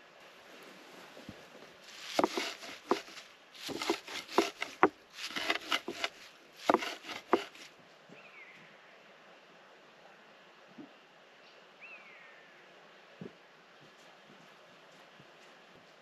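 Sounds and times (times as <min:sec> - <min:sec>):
leafy crunching: 0:01.8 - 0:07.7
blade knocking on wooden bowl: 0:02.1 - 0:07.6.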